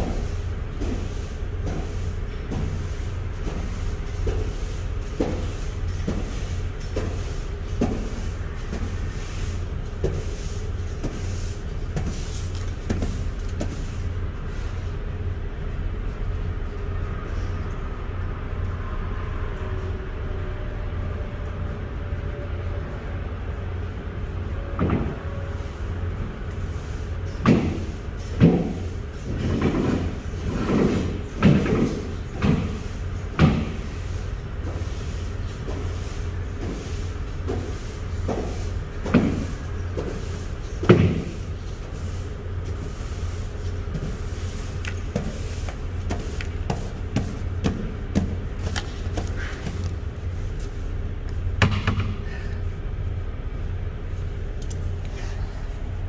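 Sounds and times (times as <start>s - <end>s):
footsteps on metal floor: 0.0s - 14.1s, 26.6s - 50.9s
broom sweeping metal floor: 0.0s - 15.4s, 25.0s - 56.0s
low machine rumble: 0.0s - 56.0s.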